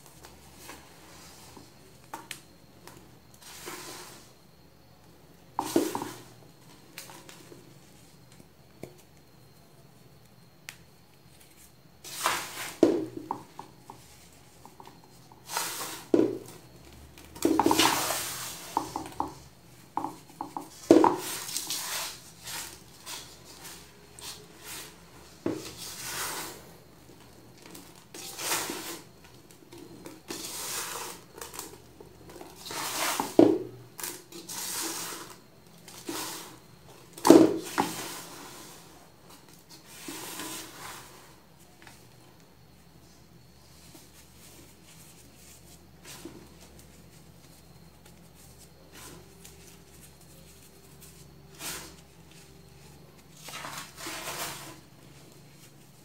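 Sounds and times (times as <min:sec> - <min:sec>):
crunching powder in metal bowl: 0:11.1 - 0:41.4, 0:44.0 - 0:56.0.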